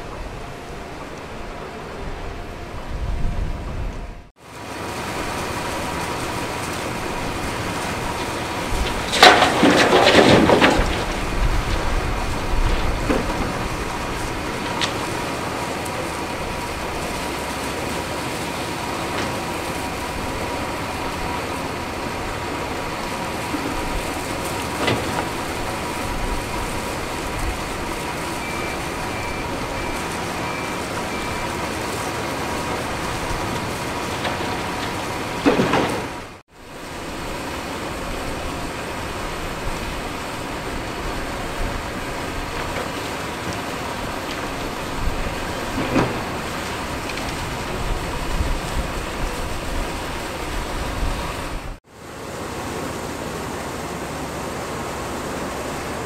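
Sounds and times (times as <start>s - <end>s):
excavator running: 0.0s - 56.0s.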